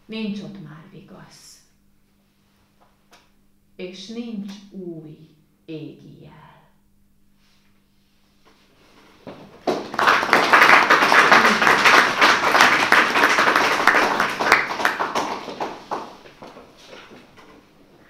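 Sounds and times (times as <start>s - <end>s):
audience applauding: 9.6s - 16.5s.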